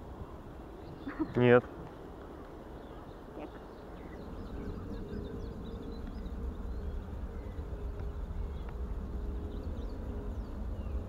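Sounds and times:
low rumble: 2.2s - 11.0s.

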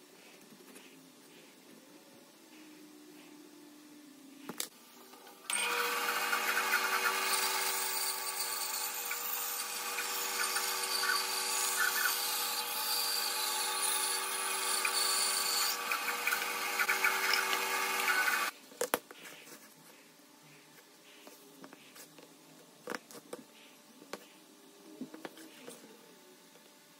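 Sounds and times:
bandsaw cutting wood: 5.5s - 18.5s.

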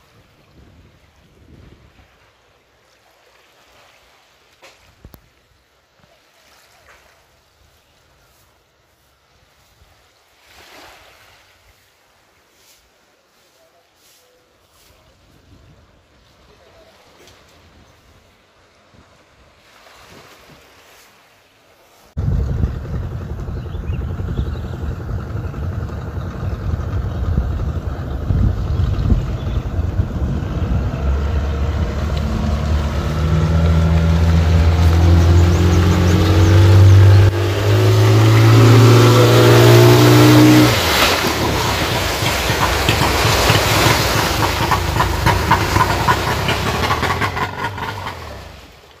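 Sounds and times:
hiss of wind and water: 0.0s - 49.0s
outboard motor revving: 22.2s - 48.9s.

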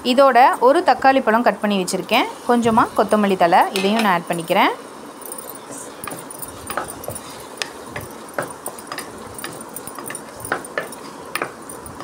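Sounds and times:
spatula knocking on pot: 6.0s - 12.0s.

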